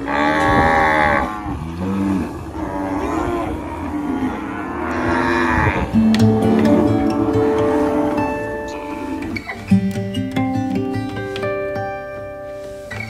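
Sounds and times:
cattle mooing: 0.0s - 9.5s.

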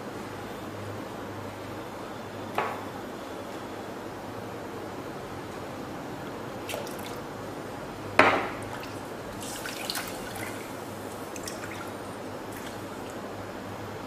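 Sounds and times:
broth sloshing: 8.6s - 13.3s.

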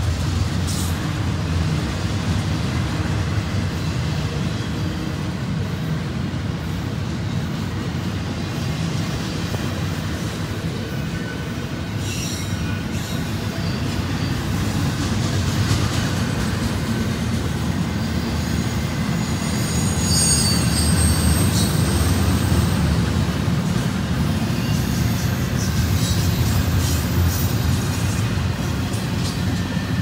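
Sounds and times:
freight train rumbling on rails: 0.0s - 30.0s
high-pitched wheel squeals: 18.6s - 22.9s.

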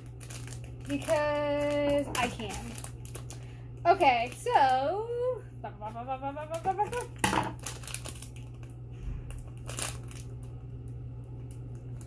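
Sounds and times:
plastic packaging crinkling: 0.0s - 5.0s, 6.5s - 12.0s.

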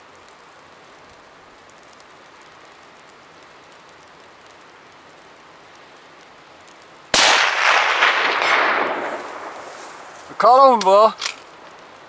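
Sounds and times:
steady low hiss: 0.0s - 12.0s
rifle shot with echo: 7.1s - 10.2s.

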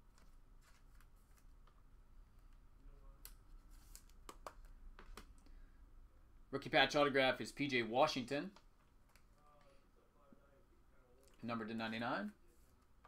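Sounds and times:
trading cards rustling: 0.0s - 5.4s.

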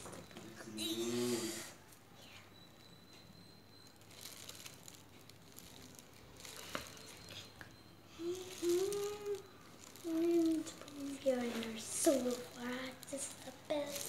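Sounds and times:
child's voice: 8.1s - 14.0s
rustling of canvas board: 9.9s - 14.0s.

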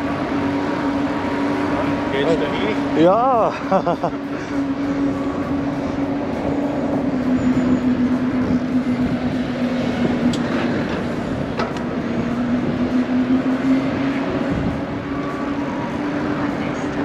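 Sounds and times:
droning hum: 0.0s - 17.0s
wind rushing on microphone: 5.1s - 17.0s.

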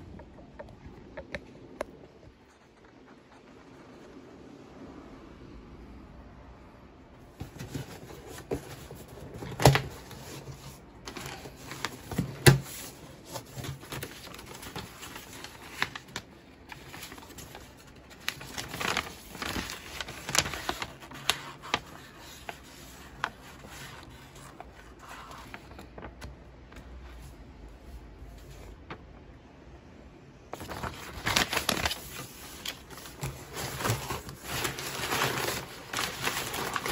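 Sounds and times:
cardboard box being opened: 7.4s - 26.1s, 30.6s - 36.9s.

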